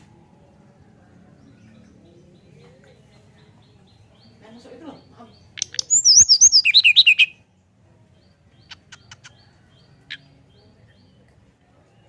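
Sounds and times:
bird singing high chirps: 1.4s - 7.5s, 8.2s - 11.2s.

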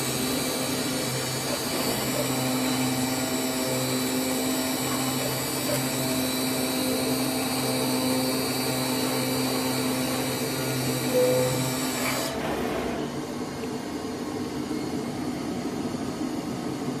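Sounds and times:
cutting machine whine and hum: 0.0s - 17.0s
brief tone: 10.9s - 12.2s.

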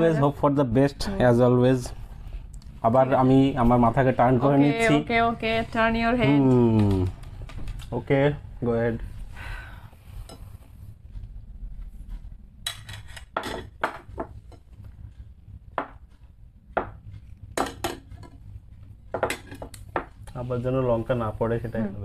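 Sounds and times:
plates clinking and knocking: 12.7s - 14.8s, 17.6s - 18.4s, 19.1s - 20.2s.

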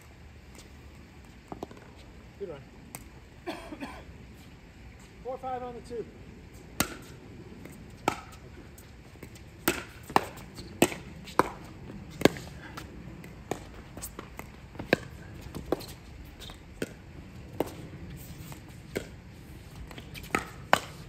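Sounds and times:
ball bouncing on court: 6.8s - 8.4s, 9.2s - 12.5s, 13.2s - 17.8s, 18.4s - 19.2s, 19.8s - 21.0s.

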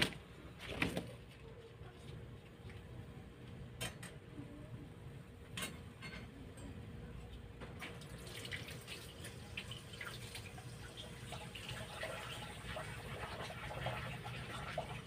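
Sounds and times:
low steady hum: 0.0s - 15.0s
kitchen utensils clinking: 3.8s - 4.2s, 5.4s - 6.8s.

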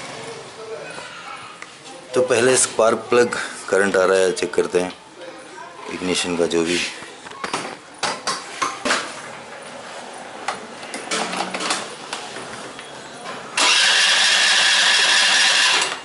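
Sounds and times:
electric starter cranking engine: 13.6s - 16.0s.

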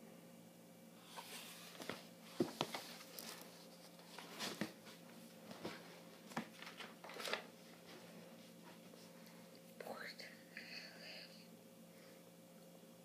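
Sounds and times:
faint steady hum: 0.0s - 13.0s
book knocking and rustling: 1.7s - 3.4s.

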